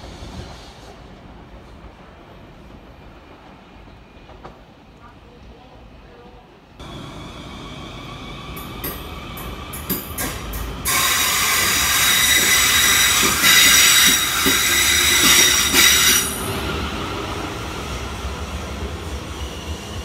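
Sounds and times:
train wheel screech and hiss: 0:00.0 - 0:01.1, 0:06.8 - 0:16.8
train rumble: 0:00.0 - 0:20.0.

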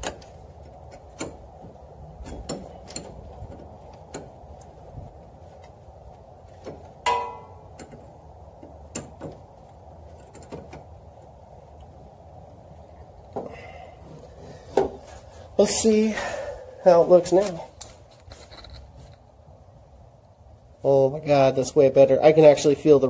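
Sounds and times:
ringing metallic clink: 0:07.0 - 0:07.7.

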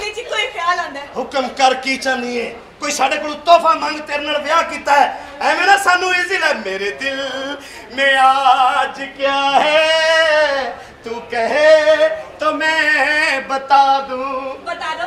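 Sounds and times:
man singing long held notes: 0:06.4 - 0:14.6.

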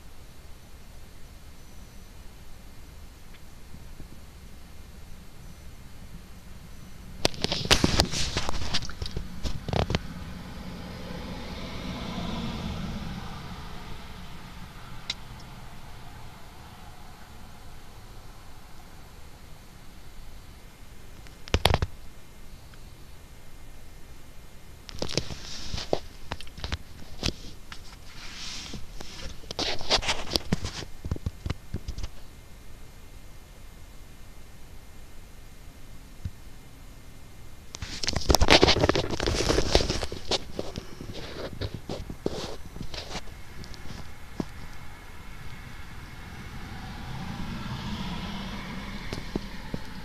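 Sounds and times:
rustling scrapes: 0:07.2 - 0:10.1, 0:25.0 - 0:31.2, 0:37.8 - 0:44.8
vehicle passing: 0:08.0 - 0:19.4, 0:42.2 - 0:50.0.

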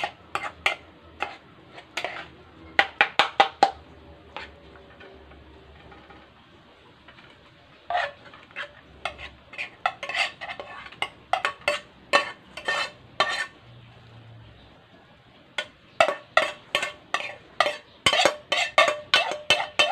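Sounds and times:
frying pan clinking on metal dish: 0:02.8 - 0:03.8, 0:09.8 - 0:13.5, 0:15.6 - 0:19.9.

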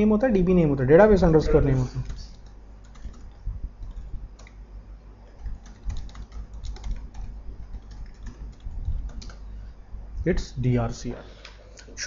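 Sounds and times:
keyboard typing: 0:01.8 - 0:04.6, 0:05.2 - 0:09.5.

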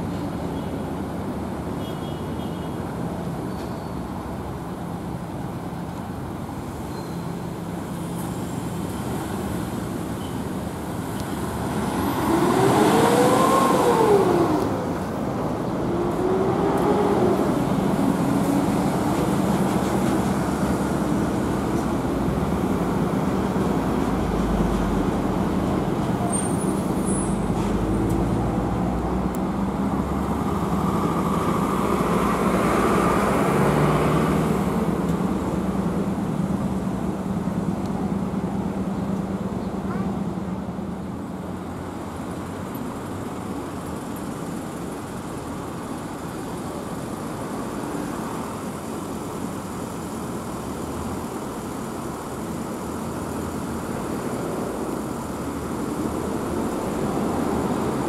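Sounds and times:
road traffic hum: 0:00.0 - 0:58.0
vehicle engine accelerating: 0:11.5 - 0:15.0.

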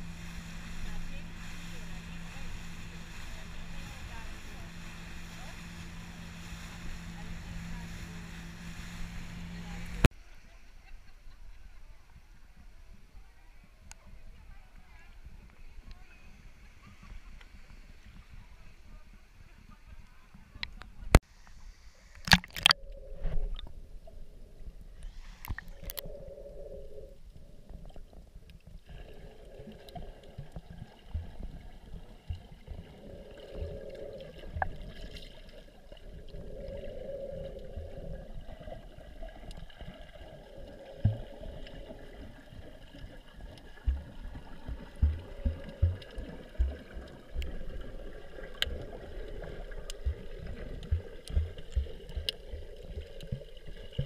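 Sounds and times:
low hum: 0:00.0 - 0:10.1, 0:12.1 - 0:54.0
muffled underwater hiss: 0:00.0 - 0:10.9, 0:11.6 - 0:54.0
camera splashing into water: 0:22.2 - 0:22.8.

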